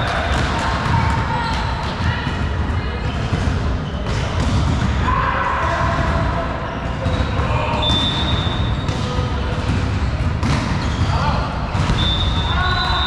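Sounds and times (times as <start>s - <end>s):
balls bouncing on hard floor: 0.0s - 5.1s, 6.9s - 12.6s
echoing hall noise: 0.0s - 13.0s.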